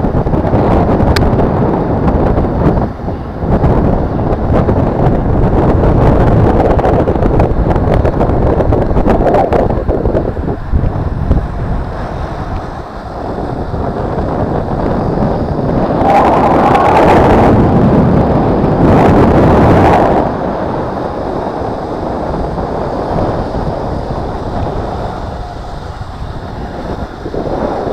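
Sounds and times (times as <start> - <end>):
wind buffeting microphone: 0.0 - 27.9.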